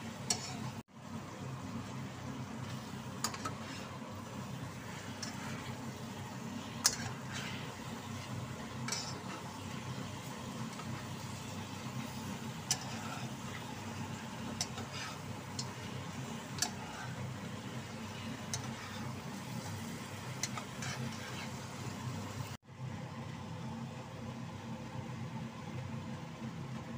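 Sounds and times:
metal spatula scraping wok: 0.0 - 0.8, 2.6 - 22.0
food sizzling in a wok: 0.0 - 22.6
steady low hum: 0.0 - 22.6.

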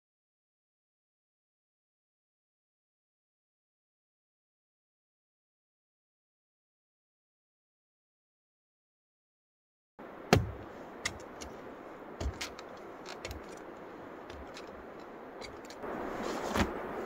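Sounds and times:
steady hiss: 10.0 - 17.0
light clicks and knocks: 12.2 - 15.8.

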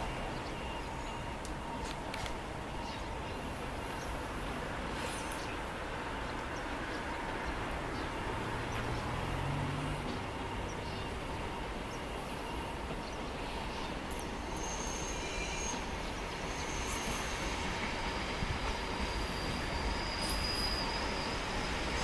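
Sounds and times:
brake and wheel squeals: 0.0 - 2.0, 2.8 - 5.6, 12.1 - 22.0
train wheels rumbling on rail: 0.0 - 22.0.

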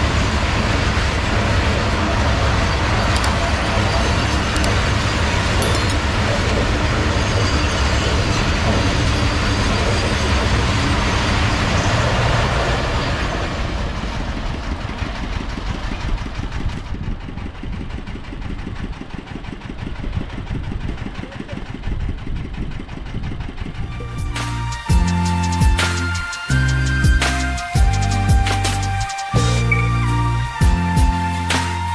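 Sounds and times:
freight wagons rumbling on track: 0.0 - 25.2
engines idling: 13.6 - 24.4.

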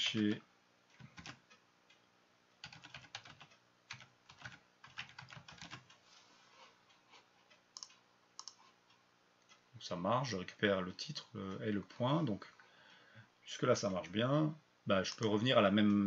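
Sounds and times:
keyboard typing: 0.9 - 1.6, 2.6 - 6.0, 6.9 - 8.8.

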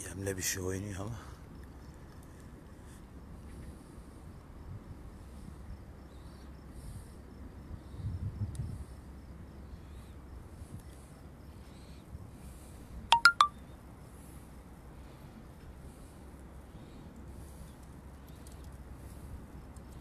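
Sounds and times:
sharp ringing clicks: 13.1 - 13.5.

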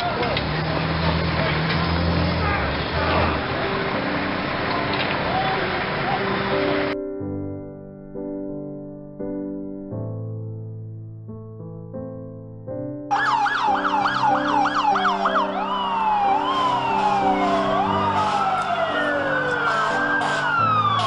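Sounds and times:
emergency vehicle sirens: 0.0 - 7.0, 13.1 - 21.0
soft piano music: 2.8 - 21.0.

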